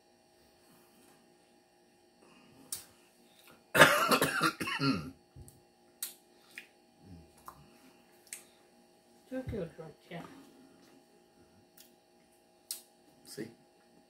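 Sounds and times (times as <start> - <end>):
man coughing: 3.8 - 5.2.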